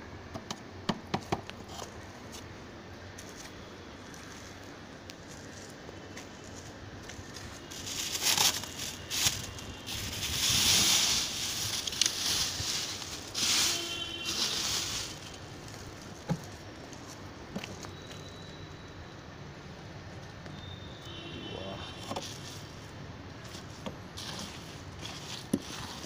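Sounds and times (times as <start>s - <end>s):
plastic bag crinkling: 7.6s - 16.2s.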